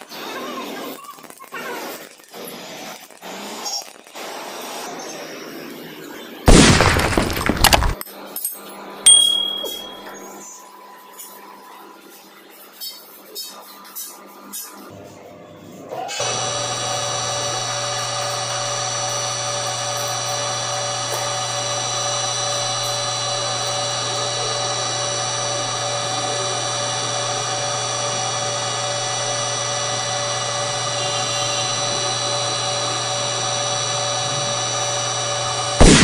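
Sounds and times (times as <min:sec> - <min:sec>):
metal lathe humming and whining: 0:16.2 - 0:35.8.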